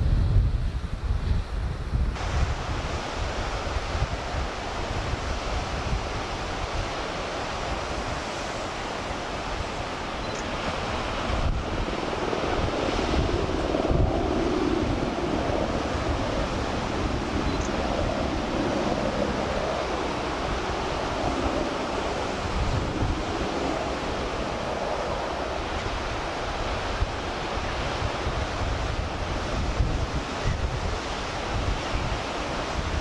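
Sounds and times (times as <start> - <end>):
wind buffeting microphone: 0.0 - 33.0
sea surf breaking: 2.2 - 33.0.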